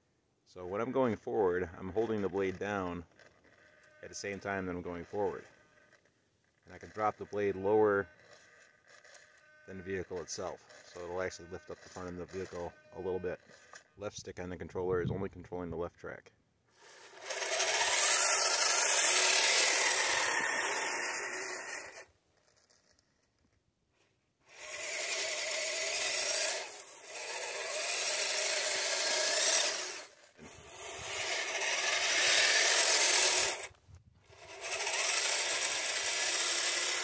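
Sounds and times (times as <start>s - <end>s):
plow pushing through snow: 0.7s - 13.8s, 16.8s - 23.0s, 24.5s - 37.0s
electric motors whining: 1.9s - 14.0s, 16.8s - 23.5s, 24.5s - 37.0s.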